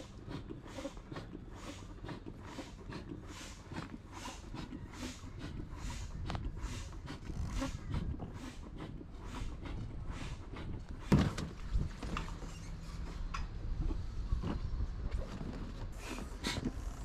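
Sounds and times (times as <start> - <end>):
inflatable dinghy handling noise: 10.9 - 17.0.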